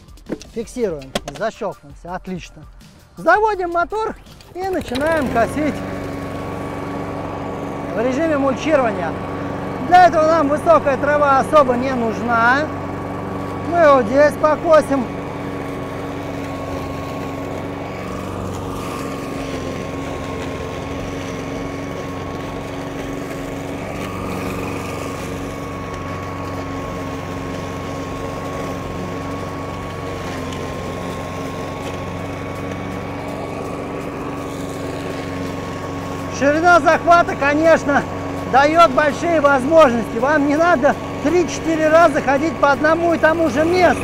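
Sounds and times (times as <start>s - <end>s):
lawn mower engine running: 0.0s - 44.0s.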